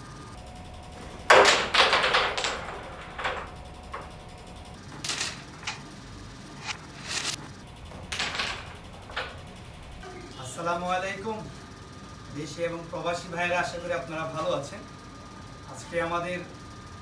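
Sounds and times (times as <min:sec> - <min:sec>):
carrom pieces clacking on board: 0:01.3 - 0:03.5.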